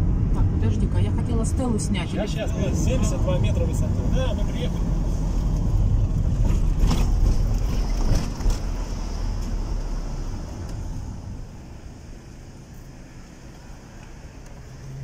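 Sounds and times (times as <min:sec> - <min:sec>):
car rumble: 0:00.0 - 0:15.0.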